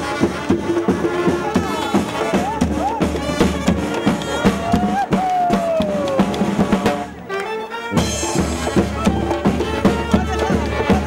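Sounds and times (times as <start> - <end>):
street brass band playing: 0.0 - 11.0
bass drum: 0.2 - 7.1
tuba: 6.6 - 11.0.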